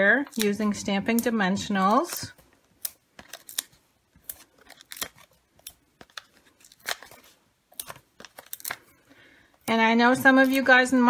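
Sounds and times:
adhesive dots peeled off backing: 0.3 - 9.0
sharp paper clicks and crackles: 1.9 - 9.0.

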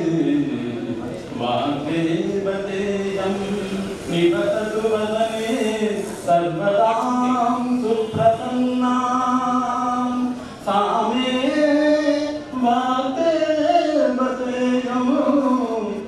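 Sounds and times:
man singing prayer solo: 0.0 - 16.0.

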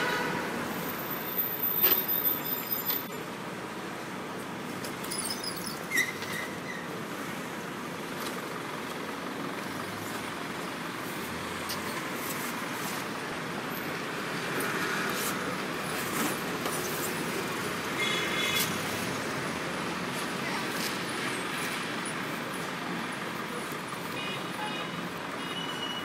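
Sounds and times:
high squeak: 5.1 - 6.9.

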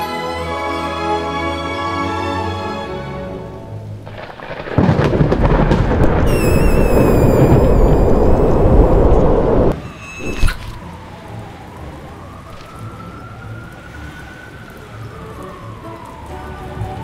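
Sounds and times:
rushing wind effect: 4.8 - 10.8
thin wavering high tone: 6.3 - 10.8.

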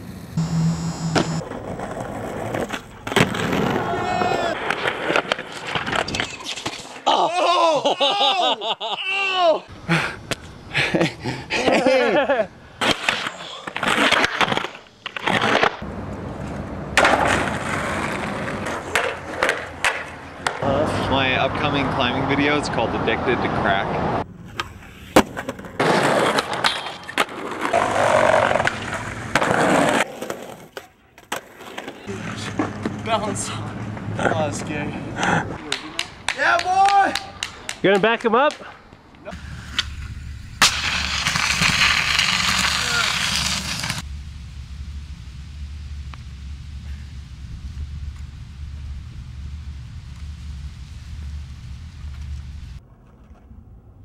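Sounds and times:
skateboard rolling: 0.0 - 7.0, 12.2 - 20.7, 23.9 - 34.8, 39.4 - 44.1, 51.2 - 54.0
man laughing hard: 7.0 - 12.6
skateboard clacking on ground: 16.4 - 20.6.

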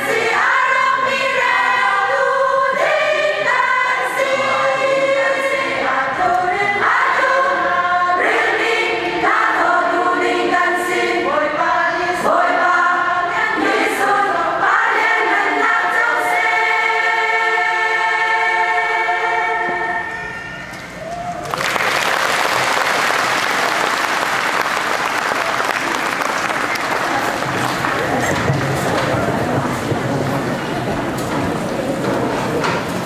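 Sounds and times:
women's choir singing: 0.0 - 20.6.

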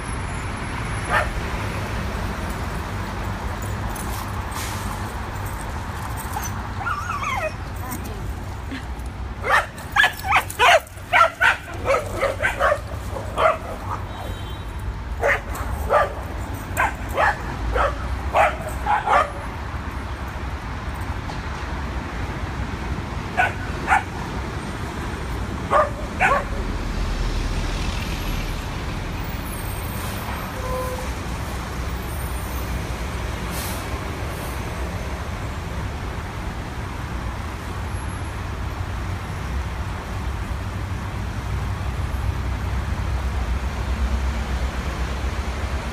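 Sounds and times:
heavy truck passing: 0.0 - 45.9
low rumble of street traffic: 0.0 - 45.9
dogs barking: 1.1 - 1.4, 9.4 - 14.3, 15.1 - 19.5, 23.3 - 24.2, 25.6 - 26.6.

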